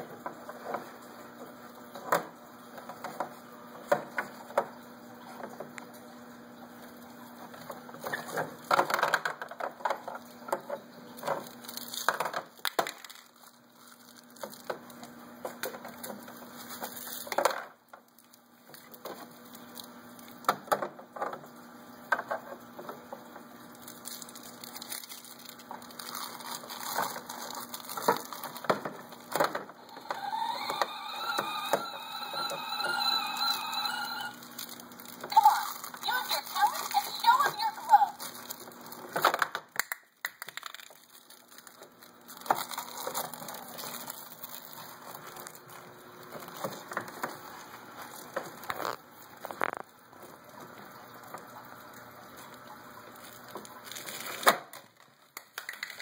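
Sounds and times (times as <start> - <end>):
pitched sound: 29.9 - 34.4.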